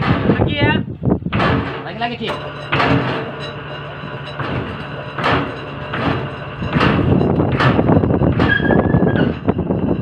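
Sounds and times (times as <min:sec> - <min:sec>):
sharp steel clanks: 0:01.3 - 0:09.7
metallic rattling clatter: 0:01.3 - 0:10.0
metal squeal: 0:02.5 - 0:10.0.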